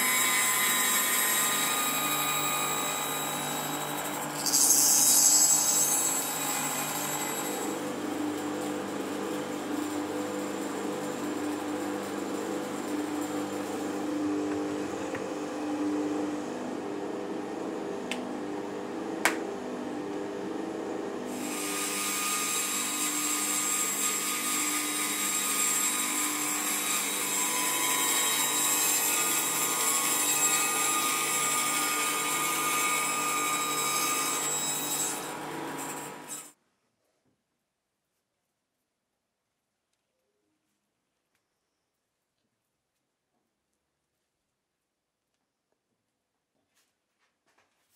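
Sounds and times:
bandsaw cutting wood: 0.0 - 16.4, 21.2 - 36.6.

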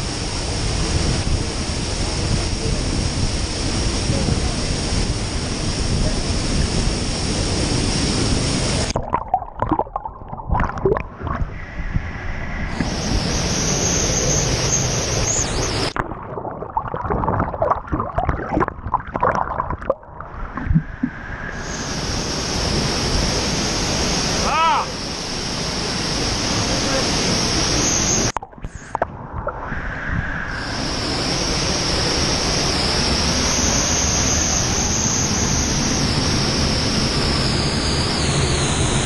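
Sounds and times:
choppy water splashing: 0.6 - 12.1, 12.7 - 21.3
waterfall rushing: 12.7 - 20.3, 21.6 - 29.0, 30.6 - 37.3.

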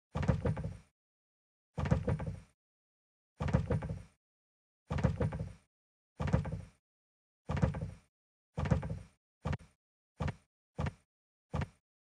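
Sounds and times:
cartoon swinging door rattling: 0.1 - 0.9, 1.8 - 2.5, 3.4 - 4.2, 4.9 - 5.6, 6.2 - 6.8, 7.5 - 11.8.

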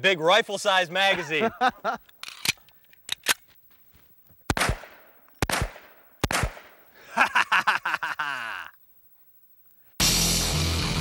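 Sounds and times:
pistol shots with echo: 4.5 - 6.8.

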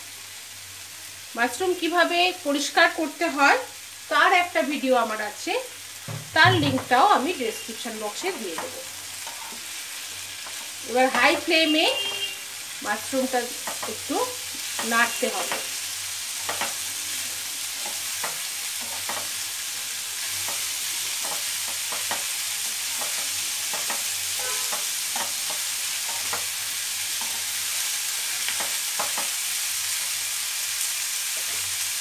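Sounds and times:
vegetables sizzling in a pan: 0.0 - 32.0
wooden spatula scraping a pan: 8.2 - 12.3.

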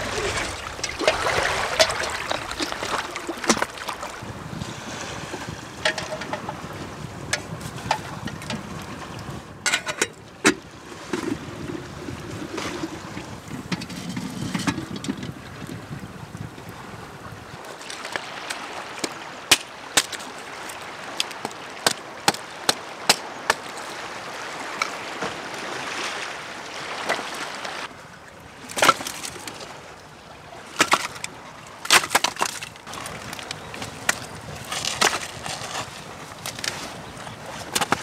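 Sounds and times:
surf: 0.0 - 38.0
wind: 0.0 - 38.0
sticks and stones cracking: 30.8 - 36.9.

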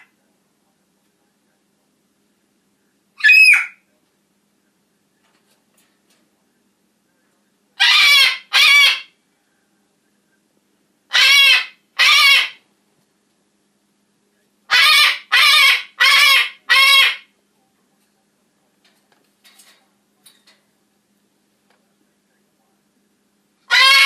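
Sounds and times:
macaw squawking: 3.2 - 3.8, 7.8 - 9.1, 11.1 - 12.6, 14.7 - 17.3, 23.7 - 24.0.

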